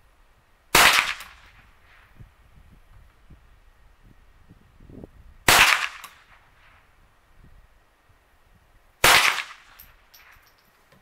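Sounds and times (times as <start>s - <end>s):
rifle shots with echo: 0.7s - 1.5s, 5.5s - 6.4s, 9.0s - 9.8s.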